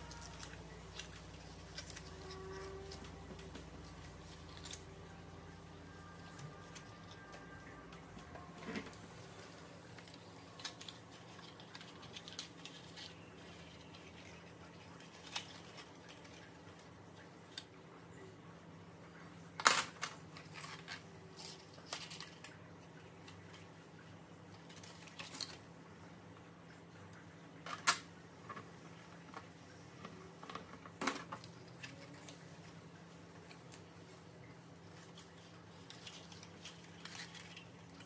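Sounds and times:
card rustling: 0.0s - 16.8s
faint steady hum: 0.0s - 38.0s.

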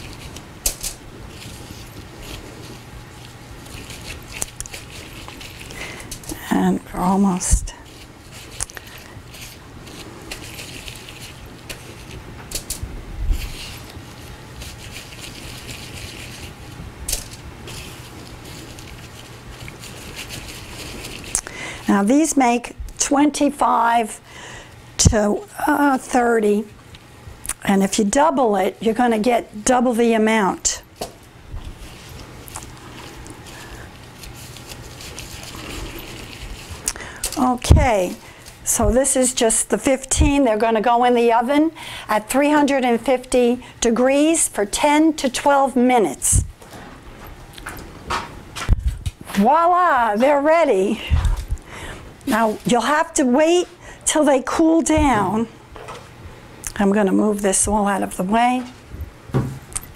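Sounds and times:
gloved hands rustling dough: 0.0s - 22.6s, 27.6s - 43.3s, 48.4s - 55.5s
low steady hum: 0.0s - 59.9s.

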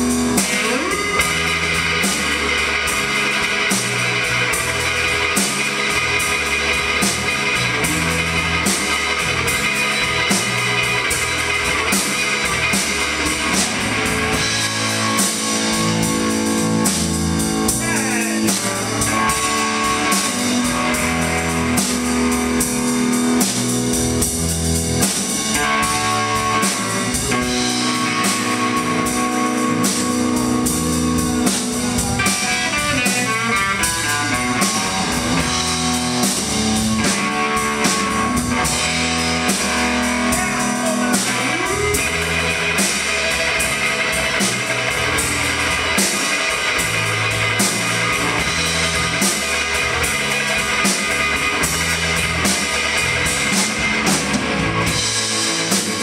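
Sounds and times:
drum kit: 0.0s - 56.0s
electric bass: 0.0s - 56.0s
electric guitar: 0.0s - 56.0s.

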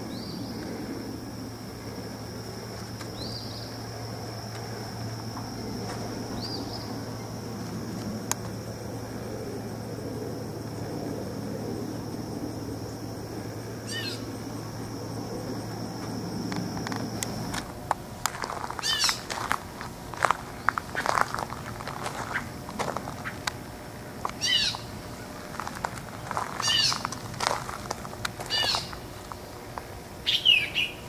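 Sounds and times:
insects droning: 0.0s - 31.0s
steady low hum: 0.0s - 31.0s
loud bird call: 13.8s - 14.3s, 18.8s - 19.3s, 24.4s - 25.3s, 26.5s - 27.1s, 28.4s - 29.0s, 30.2s - 31.0s.

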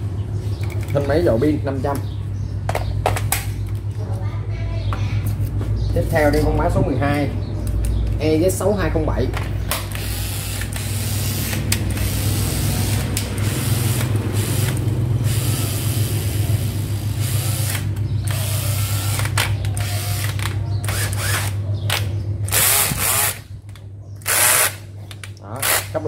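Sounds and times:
drill clutch ratcheting clatter: 9.7s - 21.6s, 22.4s - 23.5s, 24.2s - 26.0s
cordless drill motor whirring: 9.9s - 21.6s, 22.5s - 23.4s.

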